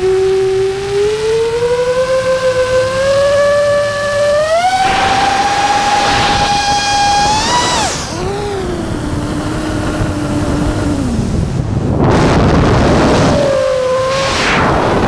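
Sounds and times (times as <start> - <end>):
drone motors whining: 0.0 - 15.0
loud rushing bursts: 4.8 - 10.1, 11.4 - 15.0.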